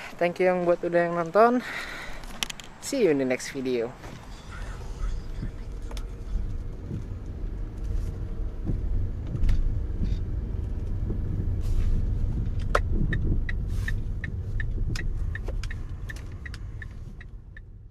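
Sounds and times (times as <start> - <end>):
car engine and tyres rumbling: 0.0 - 17.9
turn signal clicking: 5.0 - 17.9.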